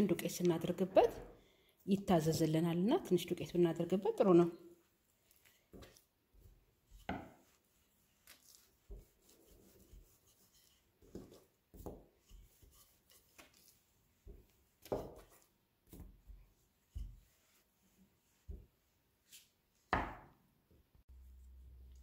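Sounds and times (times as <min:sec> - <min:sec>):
rolling pin rolling dough: 0:03.6 - 0:20.4.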